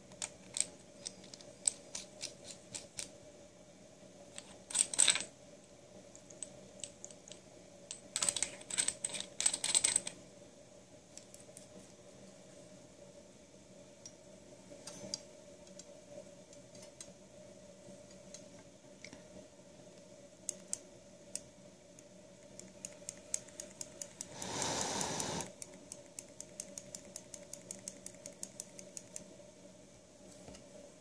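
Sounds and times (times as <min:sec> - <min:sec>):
faint steady hum: 0:00.0 - 0:31.0
small metallic clicks: 0:22.5 - 0:29.3
brief hiss: 0:24.3 - 0:25.5.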